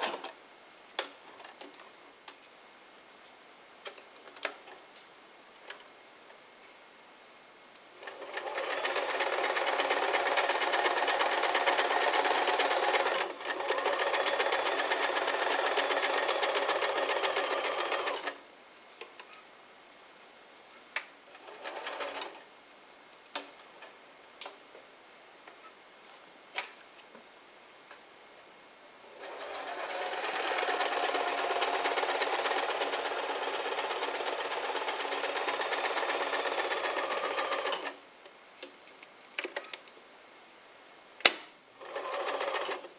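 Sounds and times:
sewing machine running: 8.0s - 18.4s, 21.3s - 22.4s, 29.1s - 38.0s, 41.8s - 42.9s.

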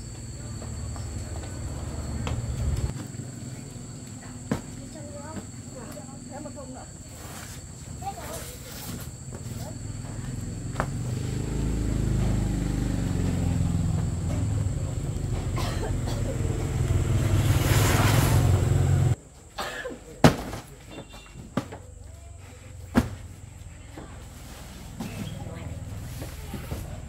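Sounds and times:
vehicle engine rumbling: 0.0s - 3.0s, 9.1s - 19.2s.

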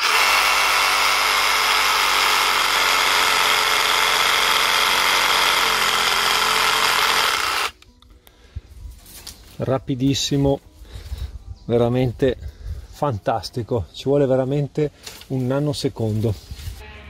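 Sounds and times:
reciprocating saw cutting branch: 0.0s - 7.7s.

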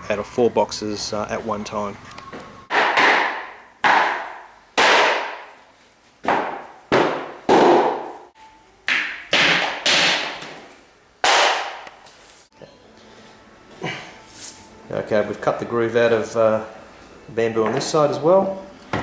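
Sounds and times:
rubber mallet knocking floorboards: 6.2s - 8.1s.

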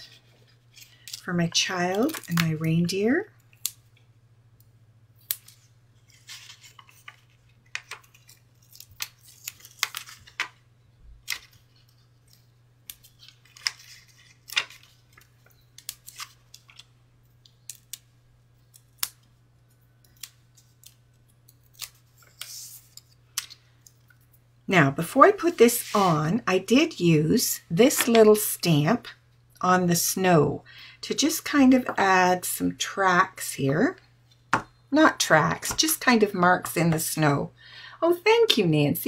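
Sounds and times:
faint steady hum: 0.0s - 39.0s
paper rustles: 5.5s - 10.6s.

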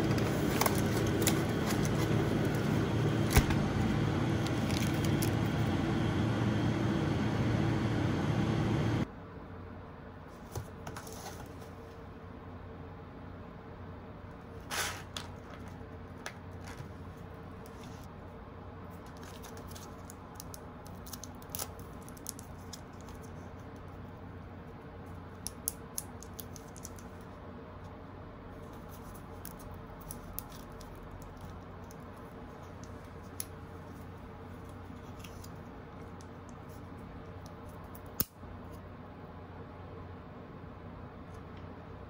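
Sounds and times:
steady low hum: 0.0s - 42.0s.

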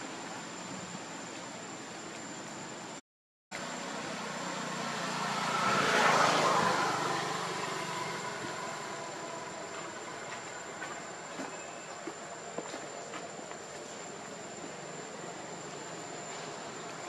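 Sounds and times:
background hiss: 0.0s - 3.0s
vehicle passing: 3.6s - 11.0s.

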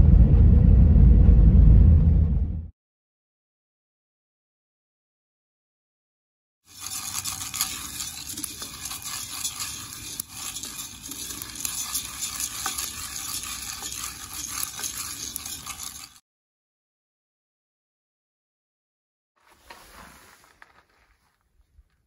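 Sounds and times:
coffee beans rattling in pot: 6.7s - 16.2s.

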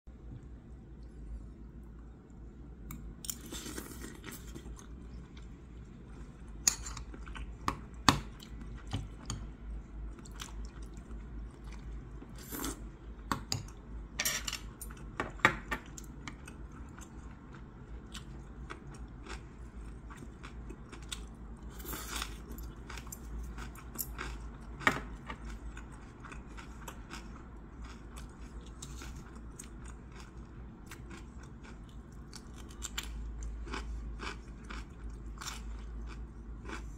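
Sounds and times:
chewing: 16.0s - 36.9s.

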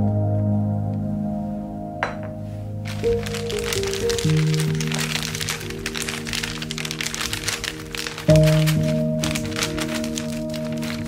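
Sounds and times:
background music: 0.0s - 11.0s
crackers crushed in plastic bag: 2.9s - 11.0s.

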